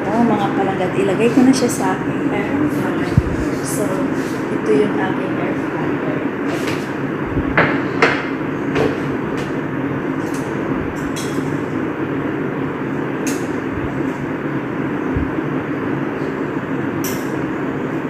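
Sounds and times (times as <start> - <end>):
fan whirring: 0.0 - 18.0.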